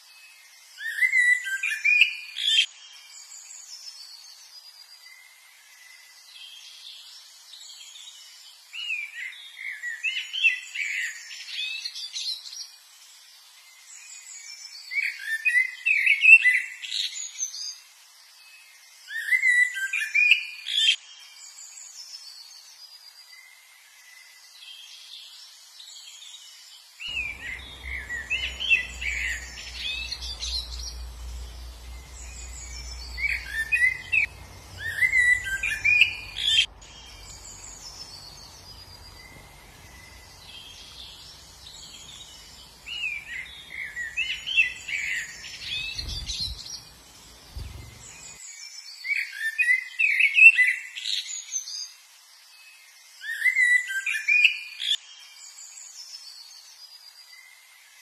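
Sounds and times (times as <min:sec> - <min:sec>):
songbirds chirping: 0:00.0 - 0:58.0
faint low rumble: 0:27.1 - 0:42.9.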